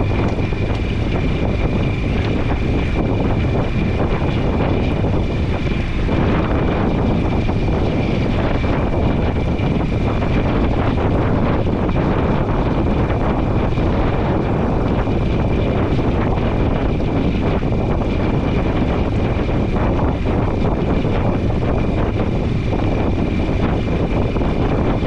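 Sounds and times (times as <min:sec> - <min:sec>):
outboard motor whining: 0:00.0 - 0:25.0
wind buffeting microphone: 0:00.0 - 0:25.0.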